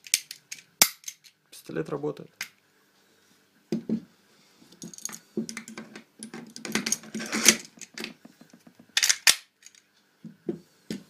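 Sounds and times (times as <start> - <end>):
pistol magazine scrape: 7.2 - 7.7
small metallic clicks and rattles: 9.0 - 9.9.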